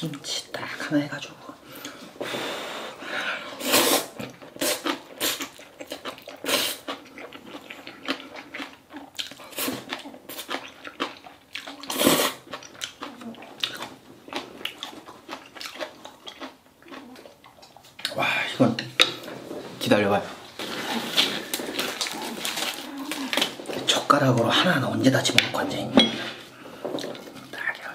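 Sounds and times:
wet slurping and chewing noodles: 3.5s - 19.8s, 20.5s - 24.2s.

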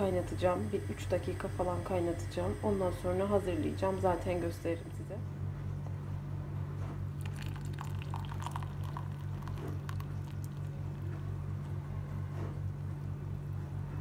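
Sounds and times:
low hum: 0.0s - 14.0s
tea pouring through strainer: 7.2s - 11.0s.

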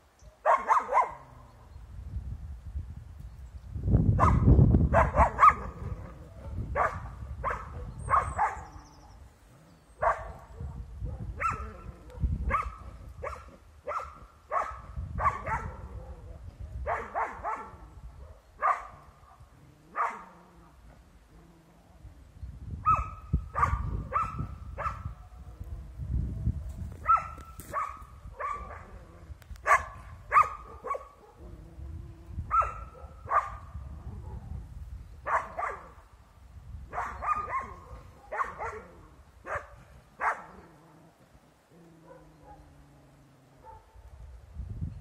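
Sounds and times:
hound barking: 0.4s - 1.3s, 4.2s - 8.8s, 10.0s - 20.4s, 22.8s - 25.3s, 27.0s - 31.4s, 32.5s - 34.5s, 35.2s - 36.0s, 36.9s - 40.8s, 41.9s - 42.8s, 43.6s - 44.1s.

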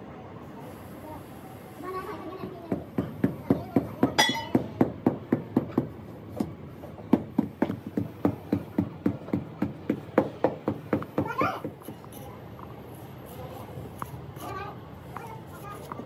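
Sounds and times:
hammer blows knocking: 2.4s - 12.1s.

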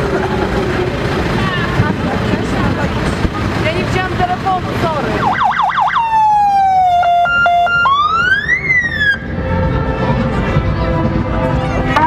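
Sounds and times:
fire engine electronic siren: 5.0s - 10.1s.

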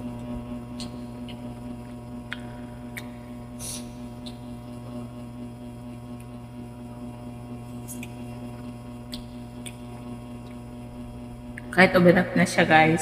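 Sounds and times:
electrical hum: 0.0s - 13.0s
wet chewing clicks: 0.7s - 3.2s, 4.1s - 4.8s, 7.8s - 10.7s.

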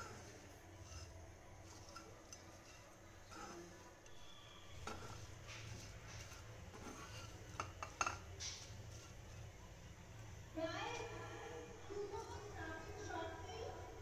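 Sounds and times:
metal spatula scraping a pan: 0.0s - 9.6s.

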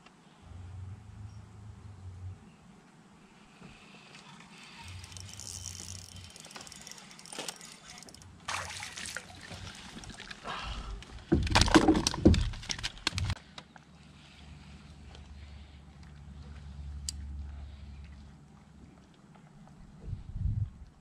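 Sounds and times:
light water sounds: 3.9s - 11.4s
fish splashing and thrashing: 4.2s - 13.4s.

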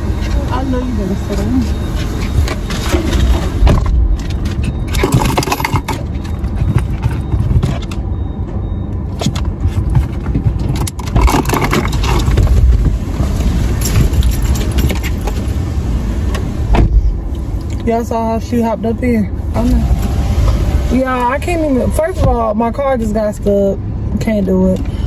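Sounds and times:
car engine idling: 9.4s - 25.0s.

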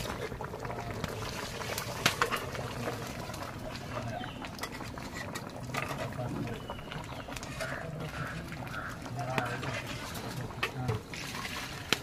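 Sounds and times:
curry boiling and bubbling: 0.0s - 12.0s.

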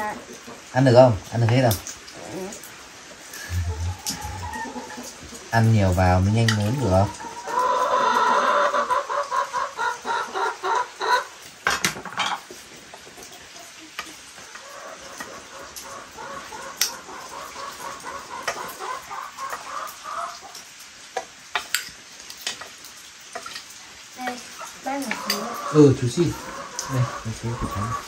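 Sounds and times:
chickens clucking: 0.0s - 21.9s, 23.4s - 28.0s
utensils clinking on pots: 11.6s - 12.5s, 21.5s - 23.8s.

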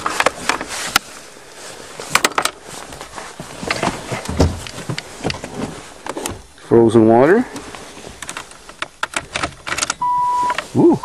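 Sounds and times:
rustling: 0.0s - 11.0s
dull thump: 3.9s - 6.5s
sharp clicks and knocks: 8.2s - 10.6s.

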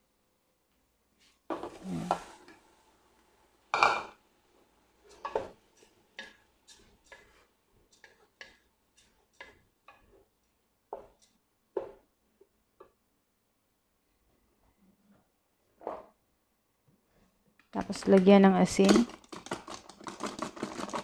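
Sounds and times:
wooden spatula scraping metal pot: 5.1s - 10.2s.

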